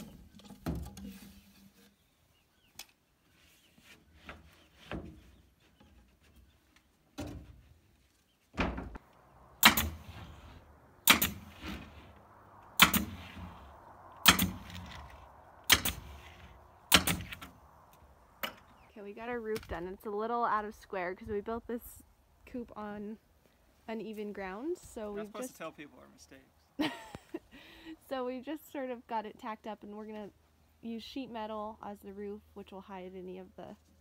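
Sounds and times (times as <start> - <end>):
boards being handled: 0.0 - 2.0
nail gun shots: 9.6 - 11.9, 12.8 - 13.6, 14.2 - 15.0, 15.7 - 17.5.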